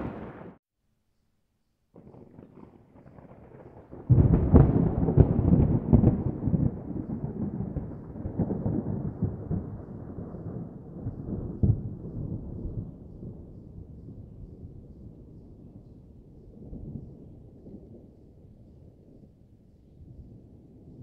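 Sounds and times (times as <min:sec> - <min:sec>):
fireworks cracks and pops: 0:02.0 - 0:03.9.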